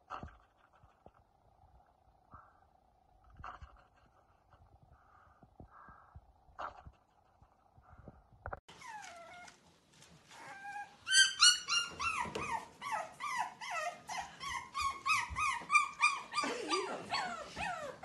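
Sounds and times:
puppy yelping whines: 8.7s - 9.6s, 10.3s - 18.0s.

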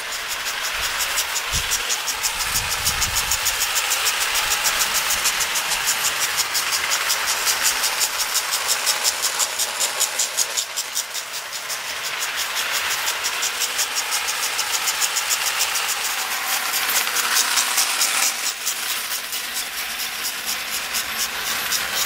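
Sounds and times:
toy train motor clicking: 0.0s - 22.0s.

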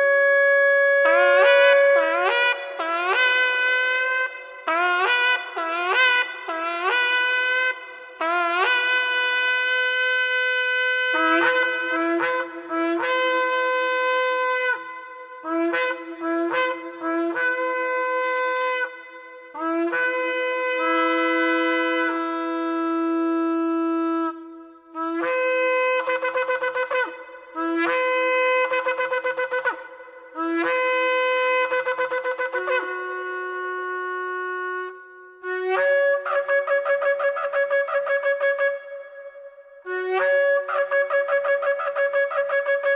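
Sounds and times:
shofar blasts: 0.0s - 23.0s.

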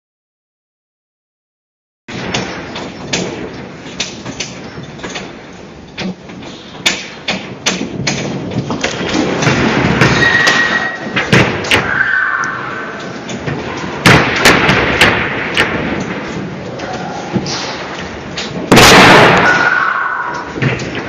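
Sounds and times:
door and fittings rattling: 2.1s - 11.9s, 12.9s - 19.7s
earthquake rumble: 7.9s - 21.0s
short high squeal: 10.1s - 11.1s, 11.8s - 13.0s.

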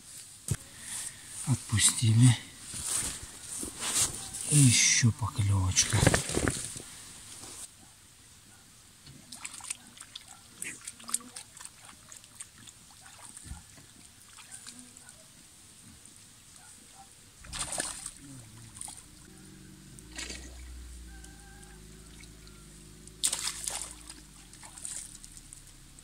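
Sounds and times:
pond water splashing and trickling: 8.9s - 16.5s, 17.3s - 26.0s.

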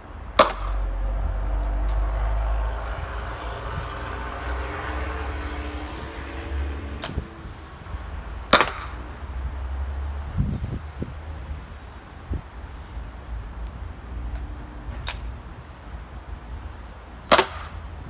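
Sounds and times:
steady engine-like drone: 0.0s - 10.1s
launcher firing sharp pops: 0.4s - 0.9s, 8.5s - 9.0s, 17.3s - 17.9s.

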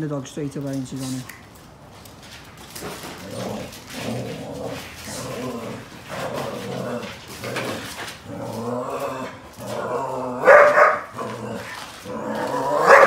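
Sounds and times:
dog barking and growling: 3.2s - 13.0s.

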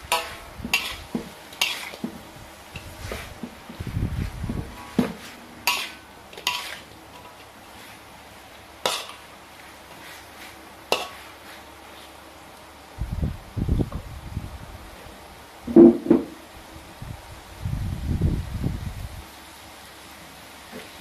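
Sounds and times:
spoon scraping a metal wok: 0.0s - 3.4s, 4.7s - 8.1s, 8.8s - 12.2s
spoon clinking against wok: 0.1s - 2.0s, 8.8s - 9.2s.

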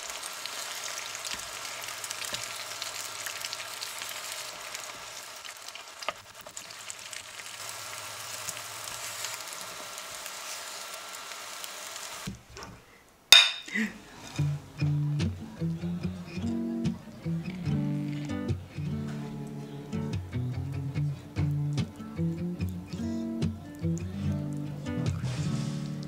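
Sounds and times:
eggs sizzling in pan: 0.0s - 12.5s, 16.9s - 26.0s
spatula tapping: 13.4s - 13.7s
ceramic bowls clinking: 13.4s - 14.4s.

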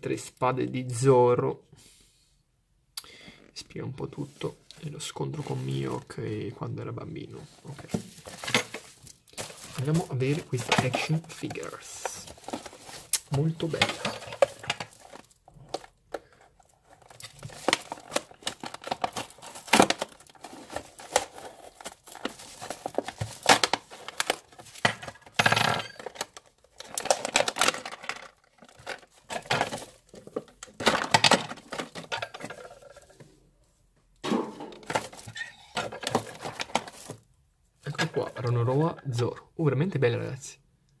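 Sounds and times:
plastic packaging crinkling: 7.6s - 33.0s, 34.9s - 37.2s.

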